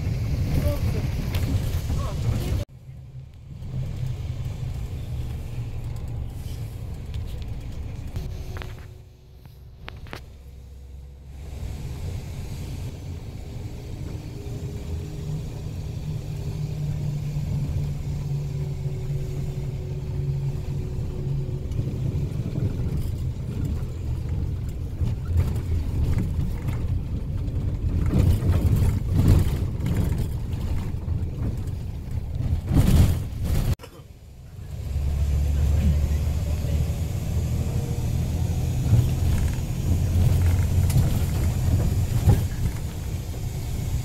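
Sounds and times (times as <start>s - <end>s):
engine and road rumble: 0.0s - 44.0s
vehicle bumps: 22.3s - 34.0s, 38.8s - 43.1s.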